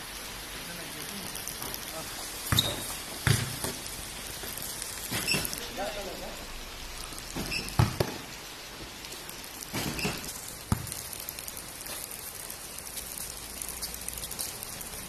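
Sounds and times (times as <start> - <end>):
steady hiss: 0.0 - 15.0
basketball thudding on court: 2.5 - 3.8, 7.4 - 8.2, 9.7 - 11.0.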